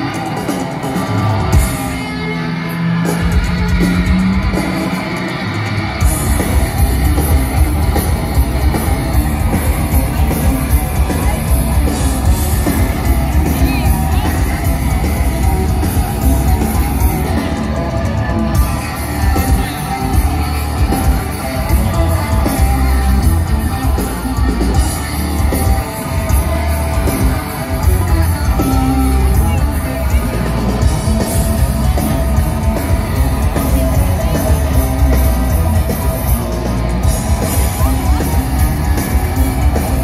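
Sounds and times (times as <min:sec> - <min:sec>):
bass guitar: 0:00.0 - 0:40.0
distorted electric guitars: 0:00.0 - 0:40.0
drums: 0:00.0 - 0:40.0.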